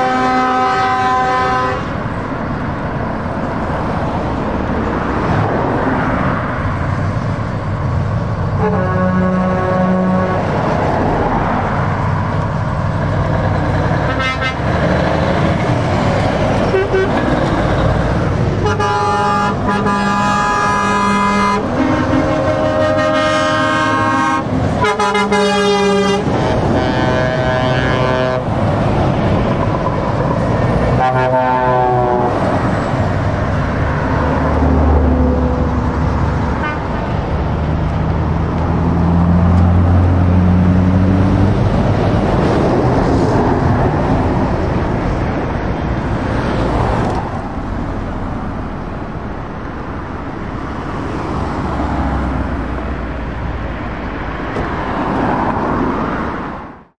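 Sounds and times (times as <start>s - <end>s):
truck horn blasts: 0.0s - 2.0s, 8.6s - 10.5s, 14.0s - 14.8s, 16.6s - 17.3s, 18.6s - 28.6s, 30.9s - 32.5s, 36.5s - 37.0s
trucks passing: 0.0s - 56.9s.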